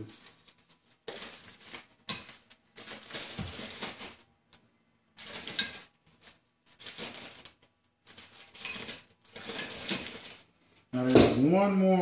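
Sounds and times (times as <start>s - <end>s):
plastic bag crinkling: 0.0s - 4.3s, 5.2s - 10.4s.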